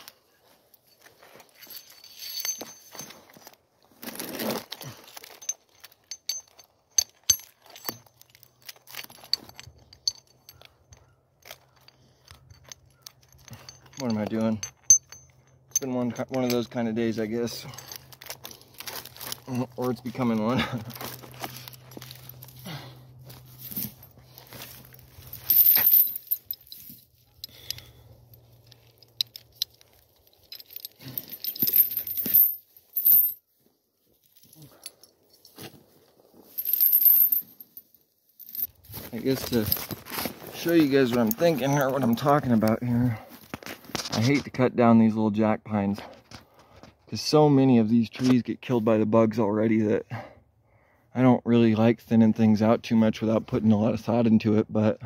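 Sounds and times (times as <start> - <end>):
metallic clinking and jangling: 0.7 - 33.4, 34.2 - 35.7, 36.4 - 43.6
low steady hum: 12.6 - 33.4.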